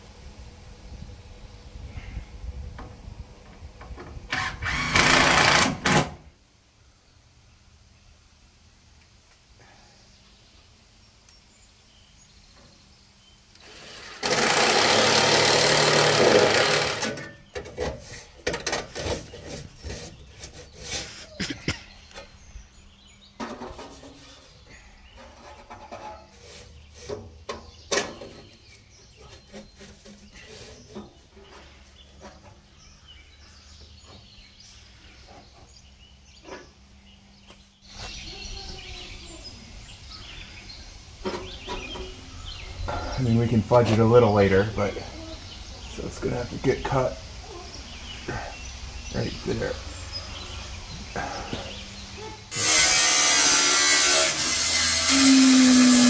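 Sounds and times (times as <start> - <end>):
cordless drill running: 4.3 - 6.0, 13.6 - 17.2, 52.5 - 56.0.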